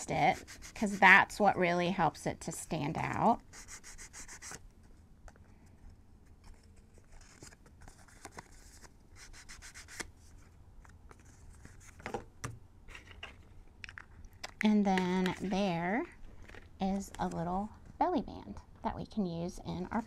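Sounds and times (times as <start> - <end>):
ink pad rubbing on paper: 0.0 - 1.1.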